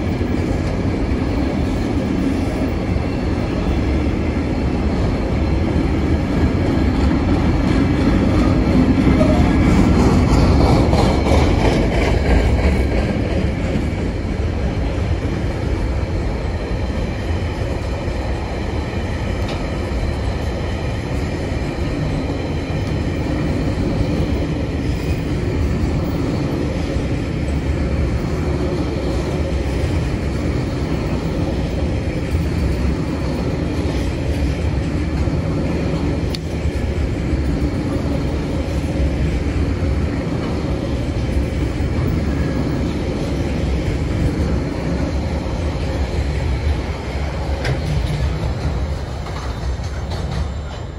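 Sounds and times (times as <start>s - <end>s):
train wheels rumbling on rails: 0.0s - 50.9s
crossing warning bell ringing: 9.0s - 10.0s.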